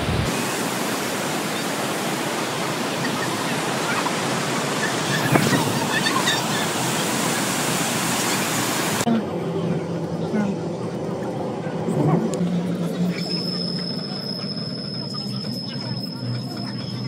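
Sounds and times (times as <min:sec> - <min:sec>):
waterfall rushing: 0:00.0 - 0:09.1
faint voices: 0:09.0 - 0:17.0.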